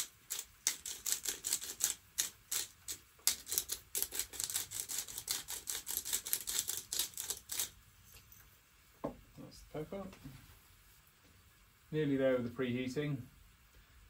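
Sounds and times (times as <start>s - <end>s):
pepper mill grinding: 0.0s - 7.8s.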